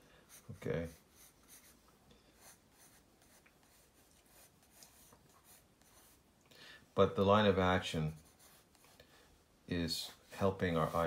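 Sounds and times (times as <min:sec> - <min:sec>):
pencil scratching on paper: 0:00.2 - 0:06.3, 0:08.1 - 0:09.1, 0:09.9 - 0:11.0.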